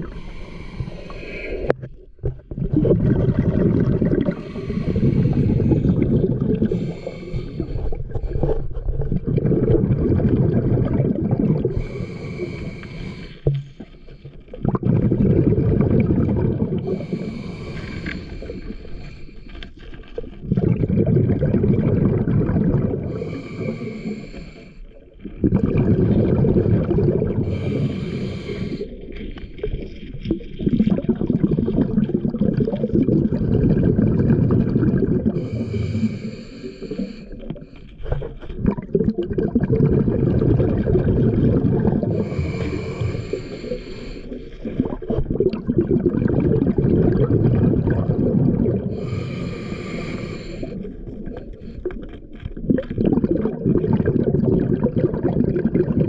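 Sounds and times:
hissing regulator inhalations: 0.0s - 1.8s, 4.3s - 8.7s, 11.7s - 14.4s, 16.8s - 19.7s, 23.1s - 24.9s, 27.4s - 29.7s, 35.4s - 38.0s, 42.1s - 44.8s, 48.9s - 52.0s
underwater exhaled air bubbles: 0.0s - 56.0s.

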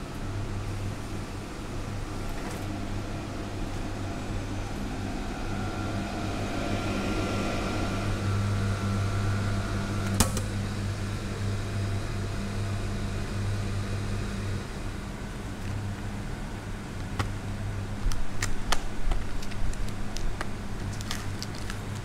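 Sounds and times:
vending machine humming with whine: 0.0s - 22.0s
flap snapping shut click: 10.0s - 10.5s.

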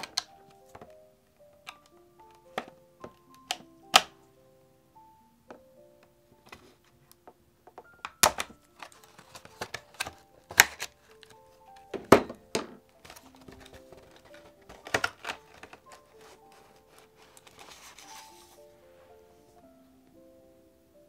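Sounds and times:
scissors cutting plastic: 0.0s - 0.3s, 8.0s - 12.0s, 13.0s - 18.2s
soft background music: 0.0s - 21.0s
plastic packaging crackling: 7.9s - 12.2s, 12.9s - 18.7s.

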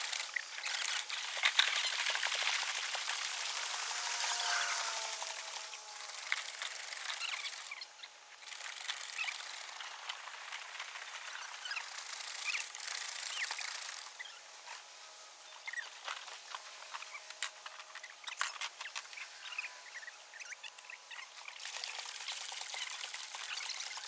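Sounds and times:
water splashing and trickling: 21.5s - 24.0s.

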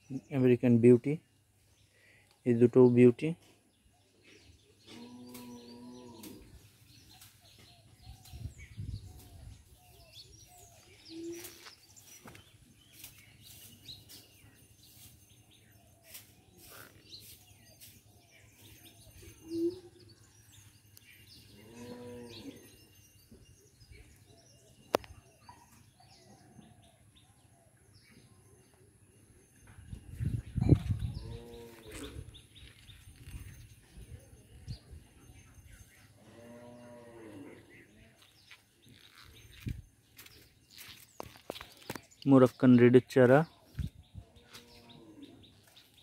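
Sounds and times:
small birds chirping: 0.0s - 46.0s
cow mooing: 4.9s - 6.4s, 21.5s - 22.7s, 31.1s - 32.3s, 36.2s - 37.8s.

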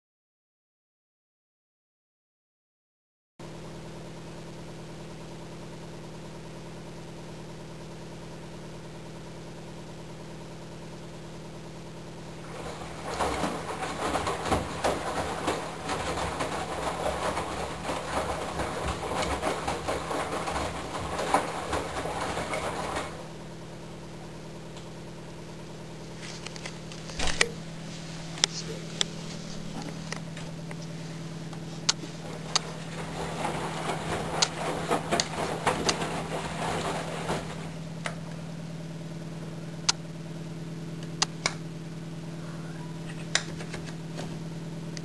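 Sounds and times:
washing machine hum: 3.4s - 45.0s
water sloshing in drum: 12.3s - 24.4s, 26.0s - 39.1s.

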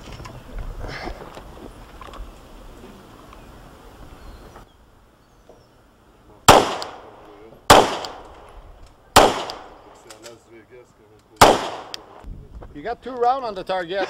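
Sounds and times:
pistol shots: 6.5s - 8.5s, 9.2s - 10.1s, 11.4s - 12.2s.

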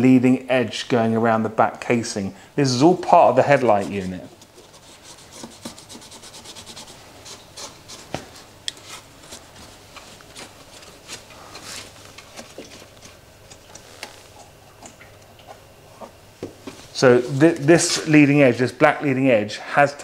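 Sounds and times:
cloth wiping plastic lens: 2.9s - 14.4s.

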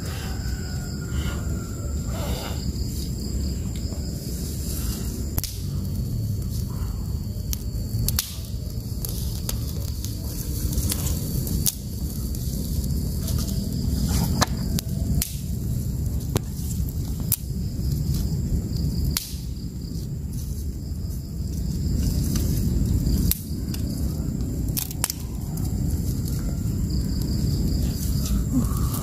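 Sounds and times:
fire crackling and popping: 0.0s - 29.0s
low fire rumble: 0.0s - 29.0s.

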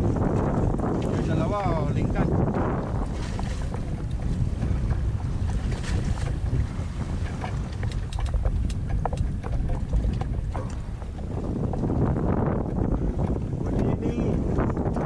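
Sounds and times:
wind buffeting microphone: 0.0s - 15.0s
small water splashes: 2.9s - 8.4s.

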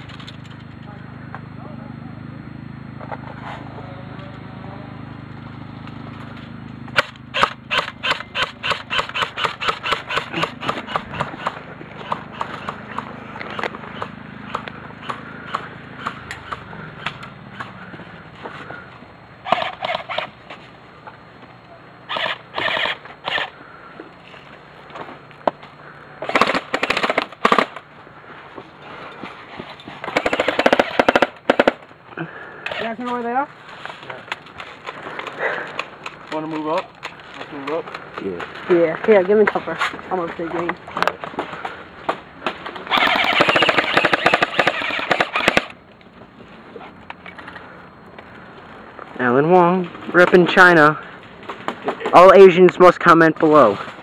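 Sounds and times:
airsoft guns firing: 7.0s - 17.8s, 19.4s - 20.4s, 22.1s - 23.6s, 26.2s - 27.9s, 30.0s - 31.9s, 42.9s - 45.8s.

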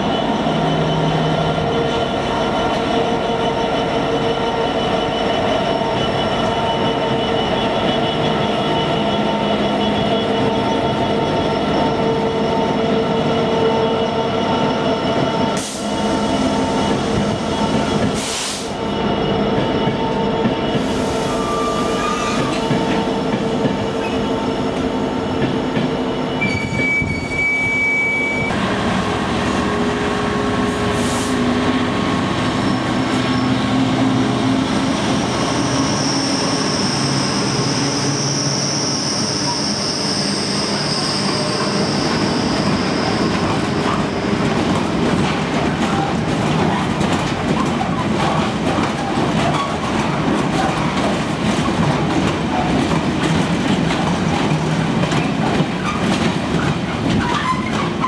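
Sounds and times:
diesel locomotive engines droning: 0.0s - 58.0s
high wheel squeal: 20.1s - 23.1s, 26.2s - 28.6s, 34.8s - 44.5s, 57.2s - 58.0s
wagons rumbling over rails: 28.4s - 58.0s.

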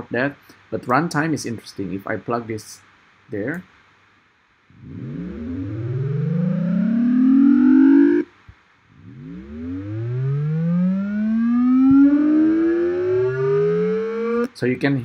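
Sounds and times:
rising synthesized tone: 4.7s - 8.3s, 9.0s - 14.5s.

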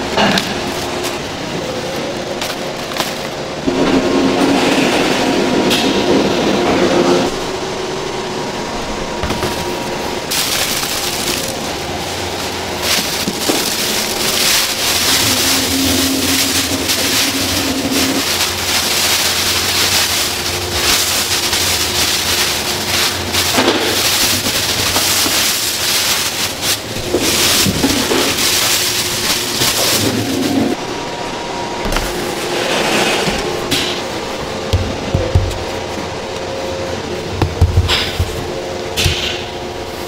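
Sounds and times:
machine humming: 0.0s - 40.0s
plastic bag crinkling: 0.6s - 3.6s, 9.3s - 30.8s.

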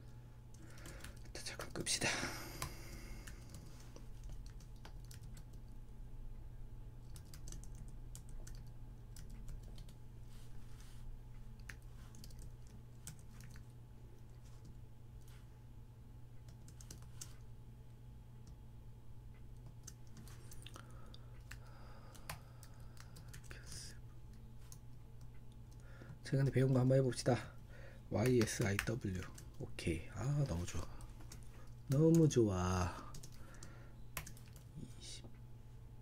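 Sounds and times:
steady low hum: 0.0s - 36.0s
typing on computer keyboard: 0.5s - 1.5s, 2.6s - 5.6s, 7.0s - 10.0s, 11.6s - 13.7s, 16.4s - 17.4s, 21.4s - 23.8s, 28.2s - 29.6s, 31.0s - 32.3s, 32.9s - 34.7s.

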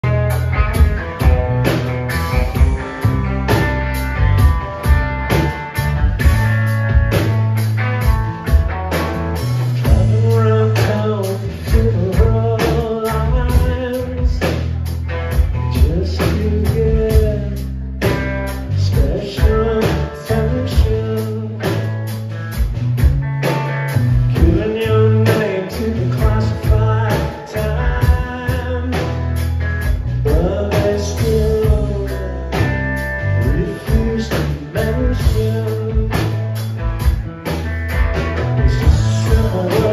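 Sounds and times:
drums: 0.0s - 39.9s
electric bass: 0.0s - 39.9s
electric guitar: 0.0s - 39.9s
man singing lead: 9.8s - 14.8s, 15.5s - 21.9s, 24.3s - 36.6s, 38.6s - 39.9s.

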